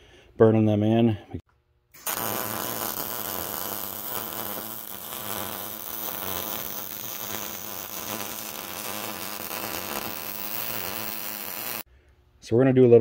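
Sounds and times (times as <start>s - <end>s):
arc welder buzzing crackle: 1.9s - 11.9s.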